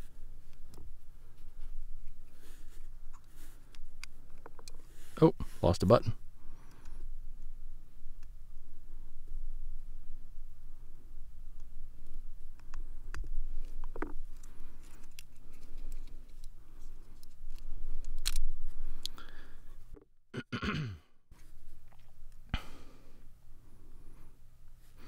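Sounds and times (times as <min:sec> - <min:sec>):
small plastic clicks and scrapes: 0:12.6 - 0:19.2.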